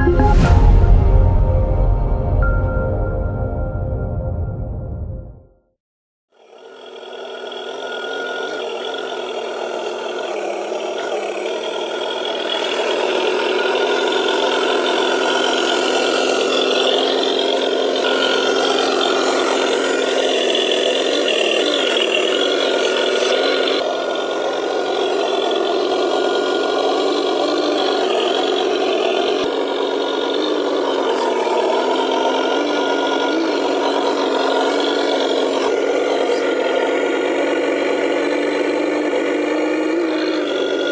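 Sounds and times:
simulated truck engine sound: 0:06.4 - 0:40.9.

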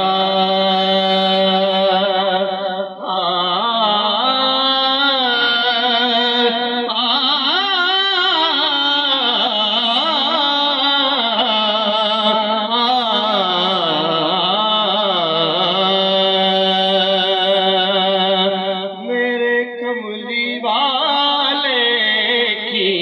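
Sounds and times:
man singing into a microphone: 0:00.0 - 0:23.0.

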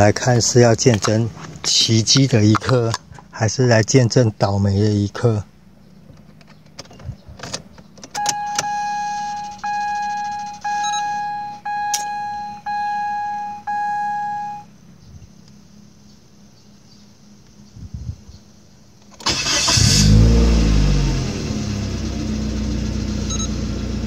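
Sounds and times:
car electronic warning chime: 0:08.2 - 0:14.7, 0:23.2 - 0:23.6
clicks: 0:11.8 - 0:12.2.

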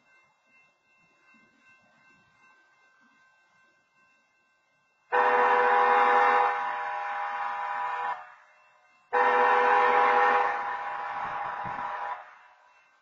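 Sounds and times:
railroad crossing horn blasts: 0:05.1 - 0:08.4, 0:09.1 - 0:12.6.

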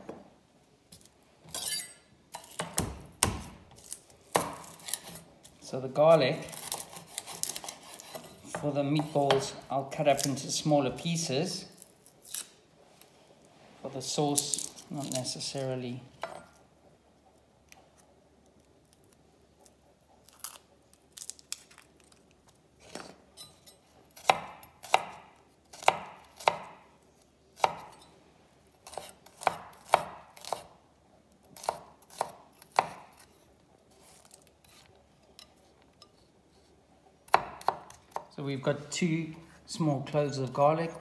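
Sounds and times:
knife chopping on wooden board: 0:02.4 - 0:03.7, 0:04.3 - 0:05.2, 0:06.5 - 0:09.6, 0:24.2 - 0:26.8, 0:27.6 - 0:28.0, 0:28.8 - 0:30.7, 0:31.6 - 0:33.3, 0:37.3 - 0:38.3.

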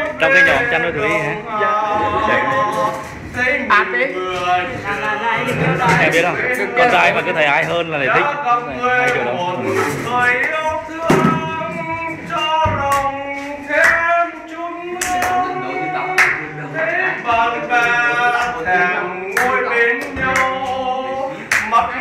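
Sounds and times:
person singing unaccompanied: 0:00.0 - 0:22.0
hand claps: 0:12.4 - 0:13.2, 0:13.8 - 0:14.1, 0:15.0 - 0:15.4, 0:16.1 - 0:16.4, 0:19.3 - 0:20.9, 0:21.5 - 0:21.8.

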